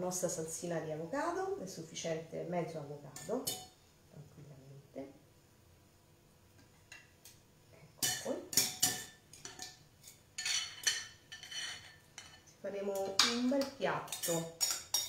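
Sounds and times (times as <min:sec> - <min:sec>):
metal utensil clinking on ceramic: 0:08.0 - 0:12.4, 0:14.1 - 0:15.0.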